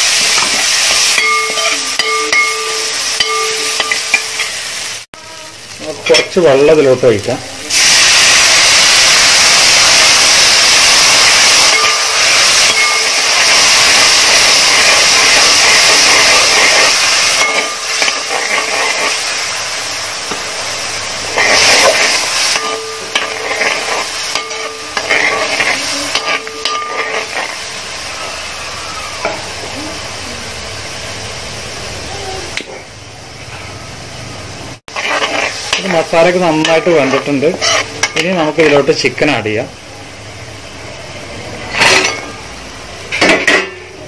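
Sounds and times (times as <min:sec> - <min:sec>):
water sizzling in hot oil: 0:00.0 - 0:44.0
ladle stirring in pot: 0:21.3 - 0:27.6, 0:34.9 - 0:38.8.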